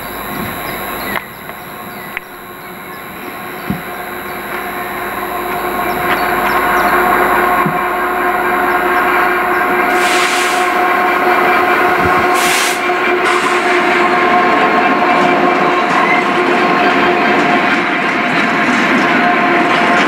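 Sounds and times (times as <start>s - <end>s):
diesel locomotive engine drone: 0.0s - 20.0s
hissy bursts: 3.4s - 13.8s.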